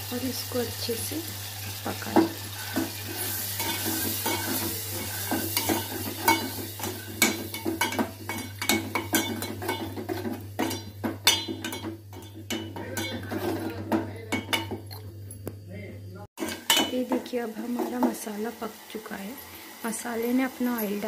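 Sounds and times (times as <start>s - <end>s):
paste sizzling in oil: 0.0s - 13.6s, 16.4s - 21.0s
spoon clinking against metal pot: 3.6s - 15.1s, 16.4s - 17.0s.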